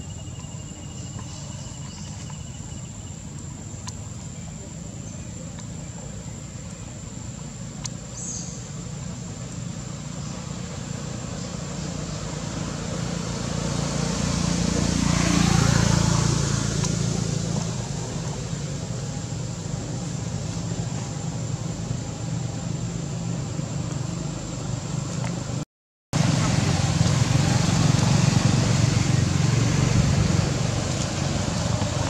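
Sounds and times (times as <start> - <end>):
motor vehicle passing: 9.3 - 25.6, 26.2 - 32.0.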